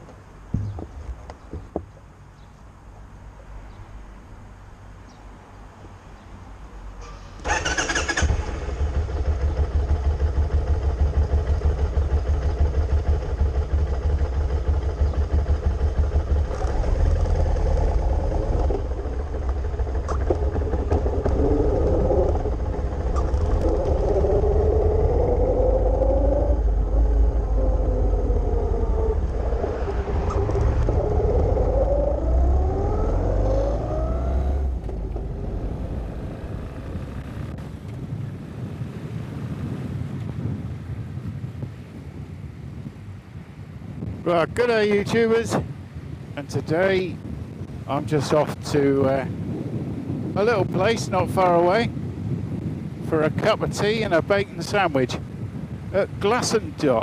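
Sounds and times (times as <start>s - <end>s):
motorcycle engine idling and revving: 0.4s - 1.9s, 7.0s - 44.2s.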